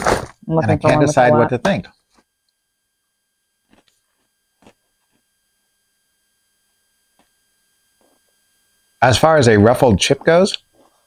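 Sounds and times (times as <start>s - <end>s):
faint high-pitched electronic tone: 0.6s - 1.8s.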